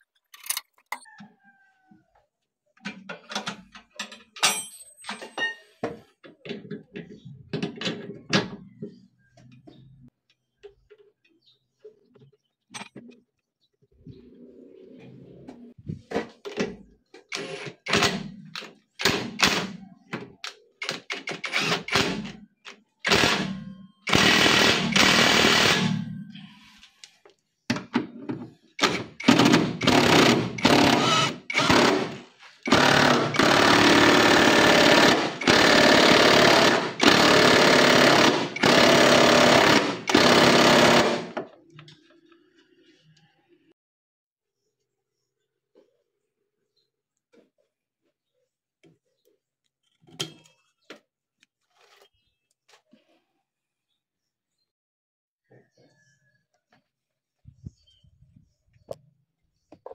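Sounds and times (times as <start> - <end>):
impact driver hammering: 23.1 - 26.0, 28.8 - 41.5.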